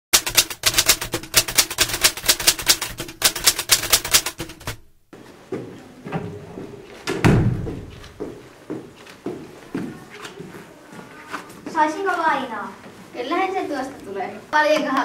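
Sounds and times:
typewriter clicking: 0:00.1 - 0:04.9
footsteps on stone stairs: 0:06.6 - 0:10.5
heavy thud: 0:07.2 - 0:08.0.

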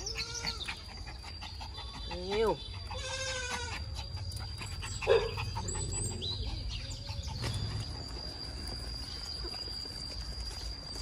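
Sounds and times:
loud animal call: 0:02.9 - 0:04.0.

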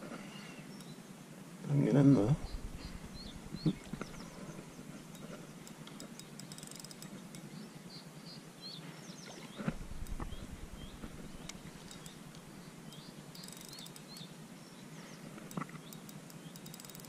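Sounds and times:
birds chirping: 0:01.7 - 0:17.0
short low rumble: 0:02.3 - 0:04.8, 0:09.7 - 0:11.8.

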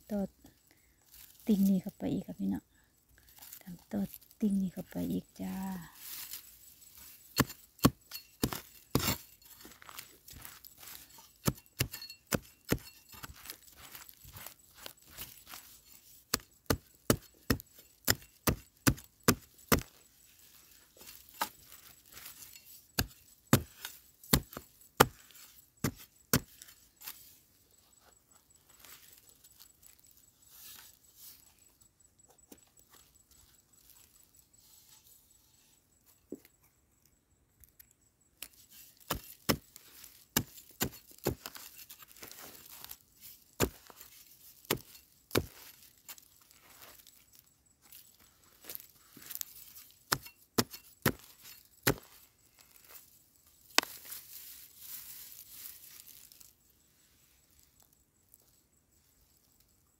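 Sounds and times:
digging tool striking soil: 0:04.8 - 0:27.3, 0:38.4 - 0:48.0, 0:48.6 - 0:54.4.

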